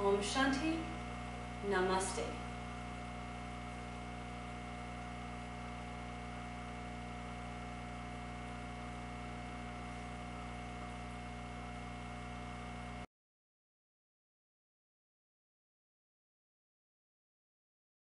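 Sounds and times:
steady electrical hum: 0.0s - 13.1s.

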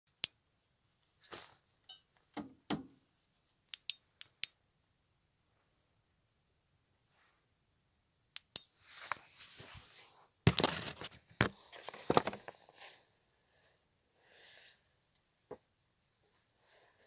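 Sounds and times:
fabric rustling over microphone: 1.0s - 1.8s, 8.8s - 13.1s.

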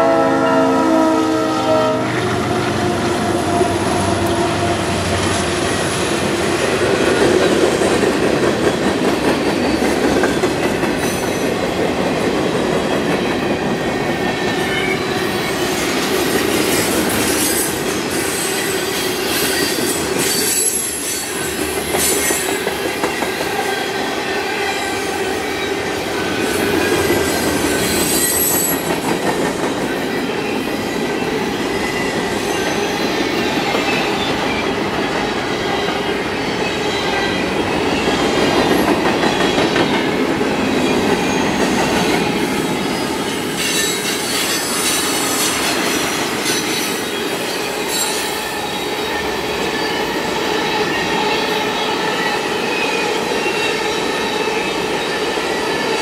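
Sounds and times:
train wheels rumbling on rail: 0.9s - 56.0s
clickety-clack over rail joints: 6.6s - 14.9s, 21.5s - 23.7s, 26.5s - 30.2s, 38.1s - 42.8s
high thin wheel squeals: 27.3s - 28.9s, 46.4s - 54.7s.

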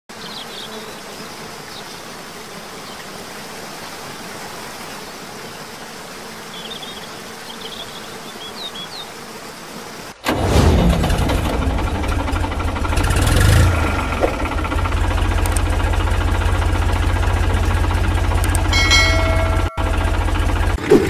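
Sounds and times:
outdoor background hiss: 0.1s - 10.4s.

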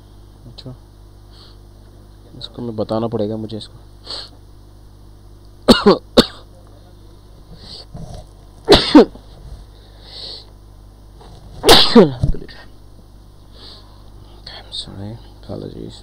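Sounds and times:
person sneezing loudly: 8.7s - 9.2s, 11.6s - 12.3s.

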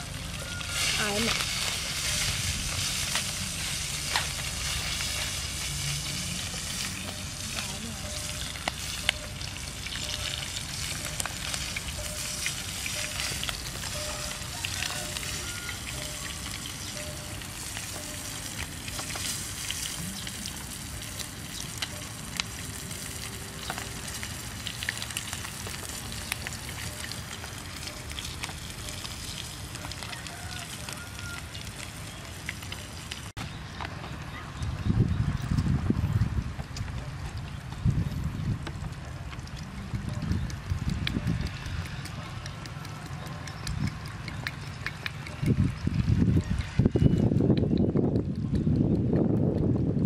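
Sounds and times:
fish sizzling in hot oil: 0.0s - 33.8s, 36.2s - 47.1s
sharp clicks: 38.6s - 49.9s.

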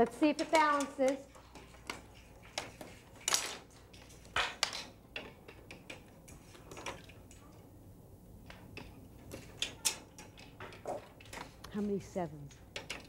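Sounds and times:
plastic weights clicking: 0.0s - 7.2s.

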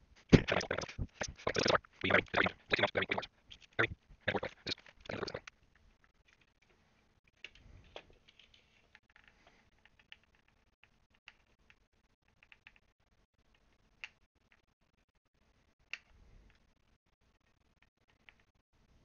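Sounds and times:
small clicks of handling wires: 4.7s - 14.7s, 15.8s - 16.7s.

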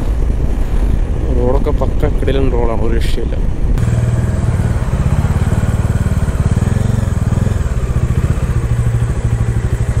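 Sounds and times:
motorcycle engine cruising: 3.8s - 10.0s.

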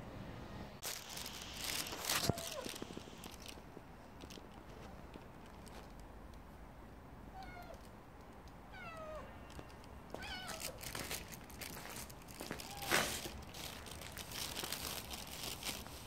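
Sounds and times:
cat yowling meows: 2.0s - 2.8s, 7.3s - 7.8s, 8.7s - 9.3s, 10.2s - 10.8s, 12.6s - 13.2s.

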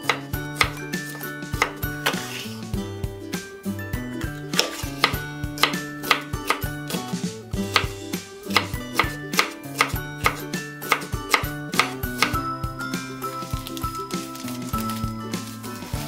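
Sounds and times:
knife chopping on wooden board: 0.0s - 2.6s, 4.2s - 12.4s
background music: 0.0s - 16.0s.

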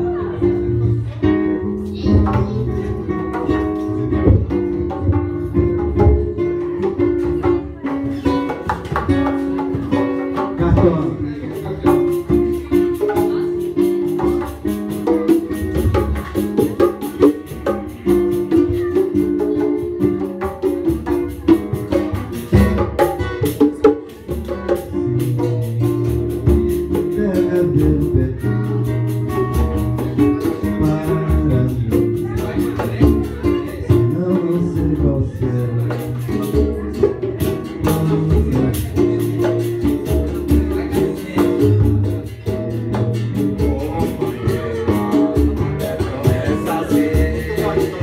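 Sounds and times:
percussion fast beat: 0.0s - 48.0s
plucked guitars and bass: 0.0s - 48.0s.

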